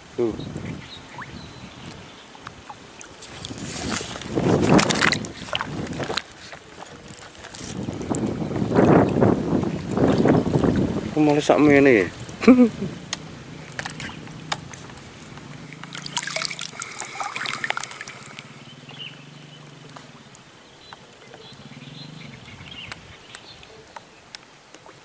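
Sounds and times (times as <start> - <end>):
river water sloshing and trickling: 0.6 - 25.0
small splashes and clicks: 1.2 - 21.7, 22.8 - 25.0.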